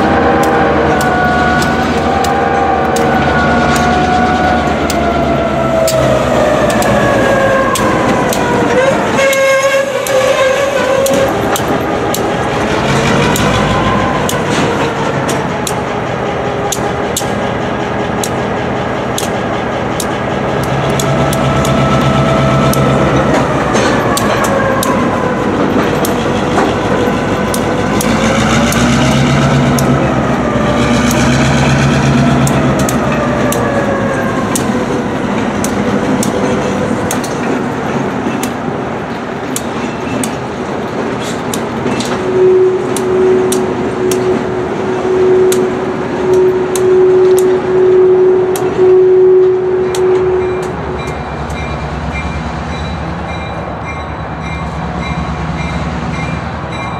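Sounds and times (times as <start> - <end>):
train wheel squeal: 0.0 - 17.6
train wheels clicking: 0.0 - 56.9.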